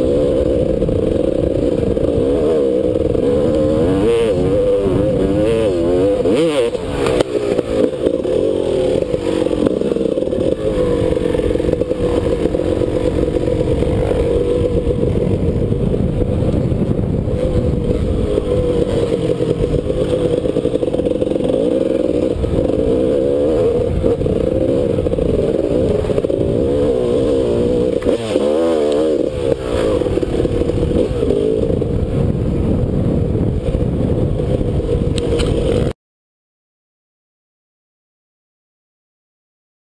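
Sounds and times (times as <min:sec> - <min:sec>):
steady low rumble: 0:00.0 - 0:28.1
dirt bike engine revving: 0:00.0 - 0:36.0.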